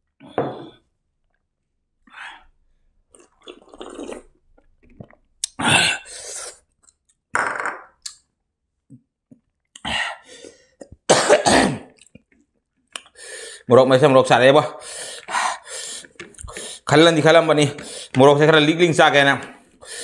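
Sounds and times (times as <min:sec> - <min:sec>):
wet chewing and mouth noises: 0:03.1 - 0:05.6.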